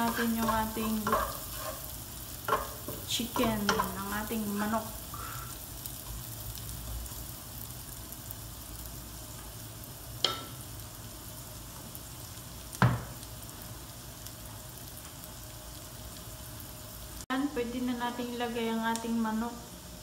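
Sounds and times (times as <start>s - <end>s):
wooden spatula stirring: 0.0s - 1.9s
food sizzling in a frying pan: 0.0s - 20.0s.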